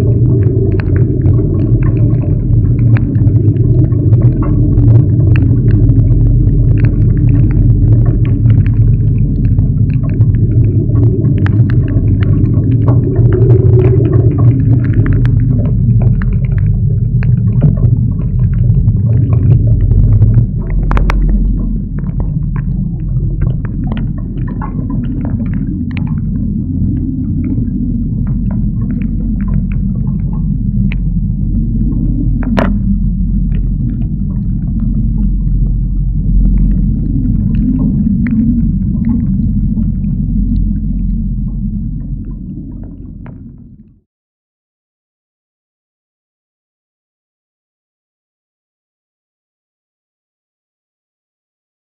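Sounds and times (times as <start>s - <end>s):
sharp ticks and knocks: 0.0s - 43.5s
wind buffeting a microphone: 0.0s - 43.9s.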